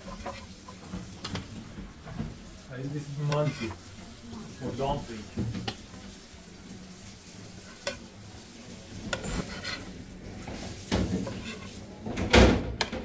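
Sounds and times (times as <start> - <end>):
metal spatula scraping a plate: 0.0 - 1.5, 3.0 - 3.8, 7.4 - 8.1, 8.9 - 11.9.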